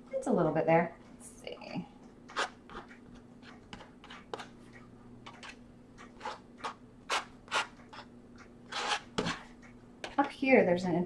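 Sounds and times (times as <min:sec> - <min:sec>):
plastic card scraping wet paint: 0:02.3 - 0:02.9, 0:06.2 - 0:08.1, 0:08.7 - 0:09.5.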